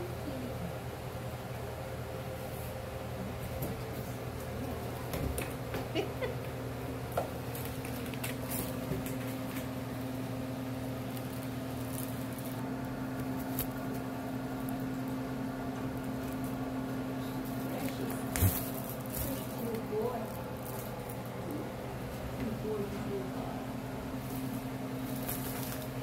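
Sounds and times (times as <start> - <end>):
mechanical hum: 0.0 - 26.0
faint clicks and rustles: 10.8 - 16.6, 17.3 - 23.2, 24.1 - 26.0.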